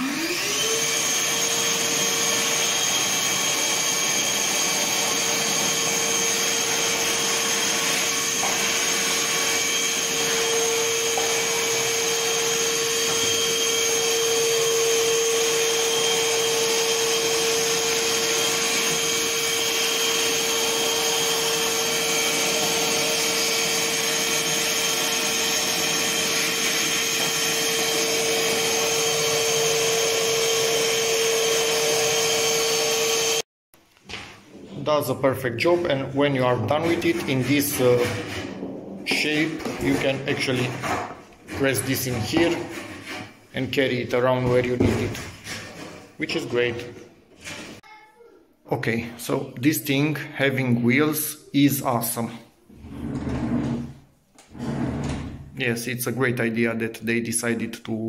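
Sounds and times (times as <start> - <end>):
vacuum cleaner motor whine: 0.0 - 33.4.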